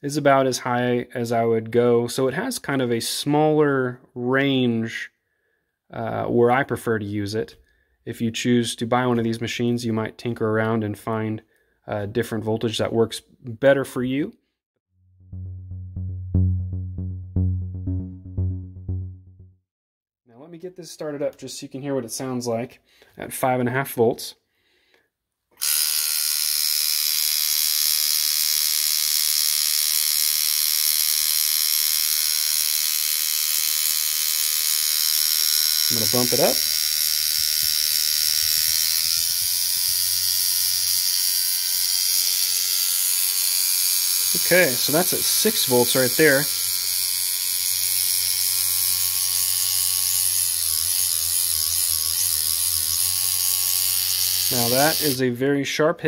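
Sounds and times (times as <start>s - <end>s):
tattoo machine motor buzz: 25.6s - 55.2s.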